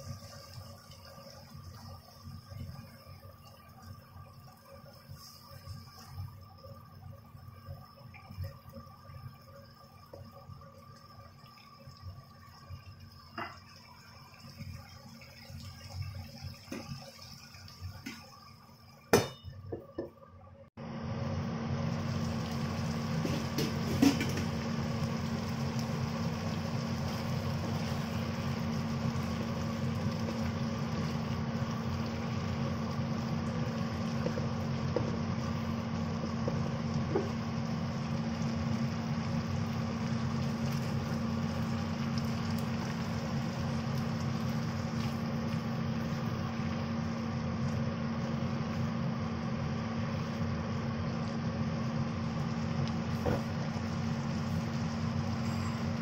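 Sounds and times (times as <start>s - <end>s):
mechanical hum: 0.0s - 56.0s.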